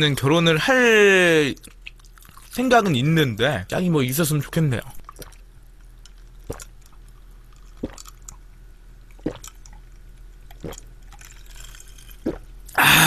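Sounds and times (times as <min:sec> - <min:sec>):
person gulping a drink: 0:05.0 - 0:05.5, 0:06.1 - 0:08.4, 0:09.1 - 0:13.0.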